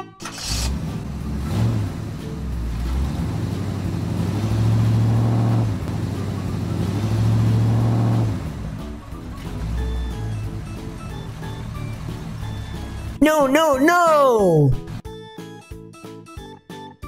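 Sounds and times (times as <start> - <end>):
vehicle engine humming: 0.2 - 13.2.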